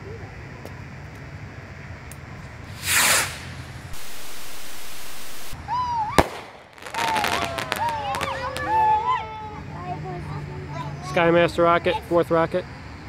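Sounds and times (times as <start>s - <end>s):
rocket launching whoosh: 2.7s - 5.6s, 6.2s - 8.5s
firework bang: 2.7s - 8.9s.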